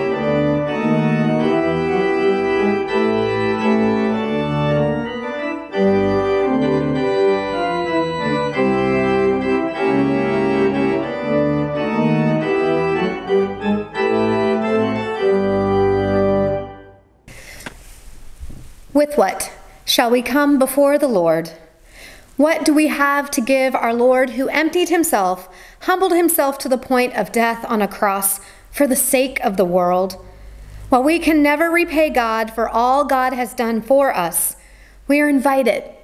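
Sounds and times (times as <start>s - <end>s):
organ playing sustained chords: 0.0s - 17.1s.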